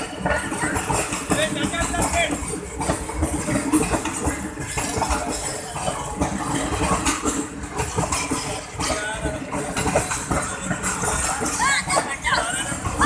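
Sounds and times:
train rolling past: 0:00.0 - 0:13.0
wheels clicking over rails: 0:00.0 - 0:13.0.

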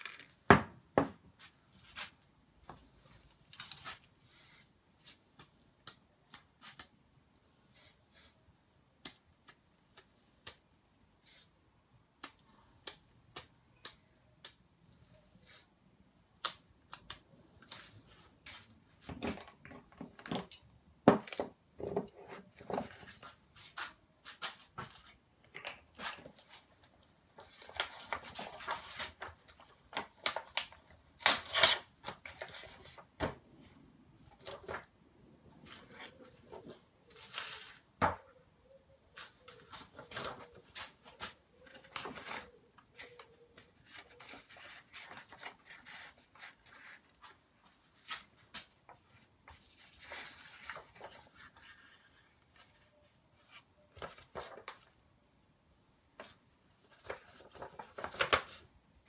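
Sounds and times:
spray paint can spraying: 0:04.2 - 0:04.7, 0:07.7 - 0:08.4, 0:11.2 - 0:11.6, 0:15.4 - 0:15.7.

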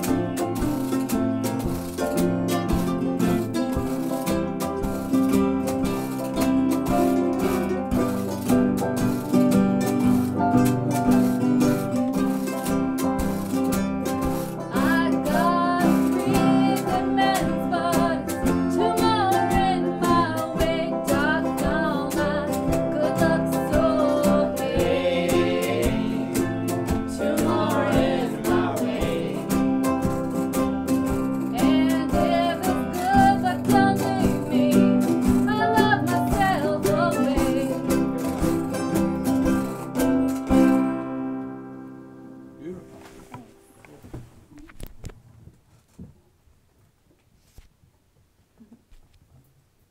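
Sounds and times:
strummed guitar: 0:00.0 - 0:43.9.

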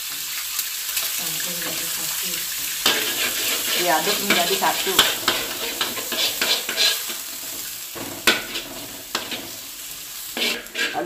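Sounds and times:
food sizzling in a wok: 0:00.0 - 0:11.0
metal spatula scraping a wok: 0:00.0 - 0:11.0
spatula clinking on a wok: 0:02.6 - 0:09.7.

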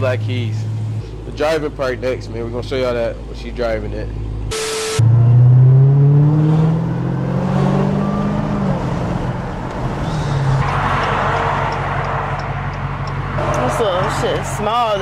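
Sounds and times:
car engine accelerating: 0:04.3 - 0:15.0.

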